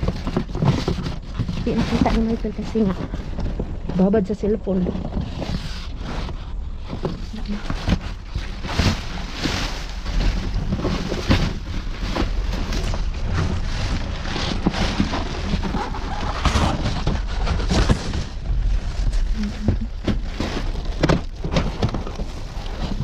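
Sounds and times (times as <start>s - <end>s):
cardboard and plastic rustling: 0.0s - 23.0s
steady low rumble: 0.0s - 23.0s.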